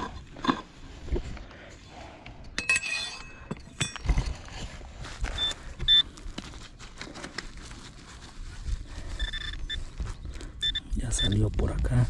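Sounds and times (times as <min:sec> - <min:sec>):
digging in soil: 0:04.0 - 0:12.0
metal detector short high beeps: 0:09.2 - 0:09.8, 0:10.6 - 0:11.4.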